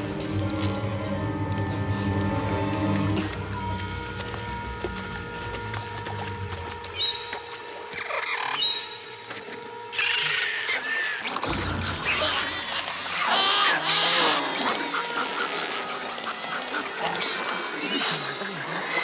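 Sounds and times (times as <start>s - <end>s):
small creatures chirping and chittering: 6.8s - 9.3s, 9.9s - 19.0s.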